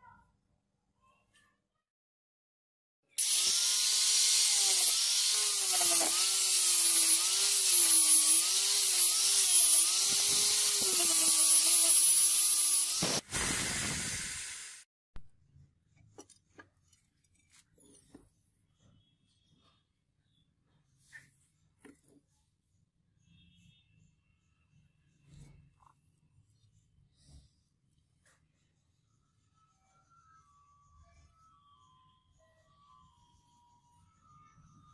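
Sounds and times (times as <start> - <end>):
power tool polishing metal: 3.2 - 13.2.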